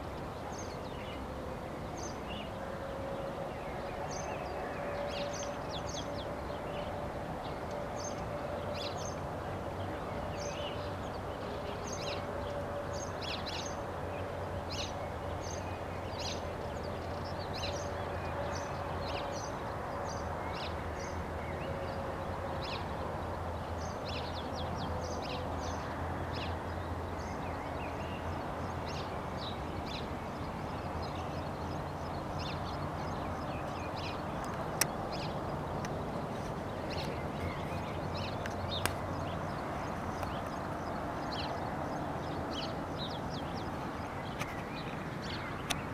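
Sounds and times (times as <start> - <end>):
small birds chirping: 28.0 - 45.9.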